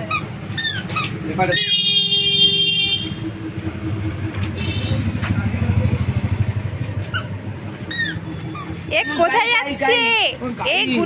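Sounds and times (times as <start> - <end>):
small vehicle engine running: 2.8 - 9.8.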